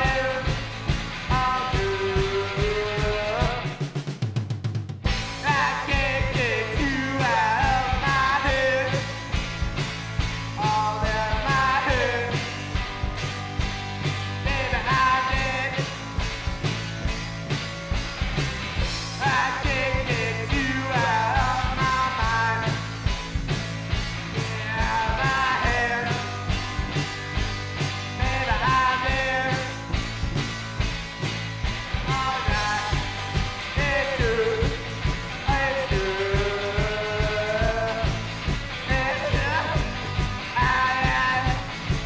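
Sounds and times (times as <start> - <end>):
electric bass: 0.0 - 4.0, 5.0 - 42.0
man singing: 0.0 - 4.0, 5.3 - 9.3, 10.5 - 12.6, 14.4 - 16.0, 19.1 - 22.9, 24.4 - 26.6, 28.1 - 29.9, 32.0 - 42.0
electric guitar: 0.0 - 4.2, 5.0 - 42.0
drum kit beat: 0.0 - 42.0.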